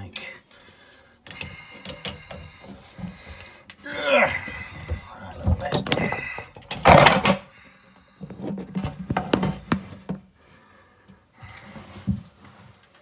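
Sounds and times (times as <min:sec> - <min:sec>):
spanners clinking on metal: 0:01.2 - 0:02.6, 0:05.5 - 0:07.4.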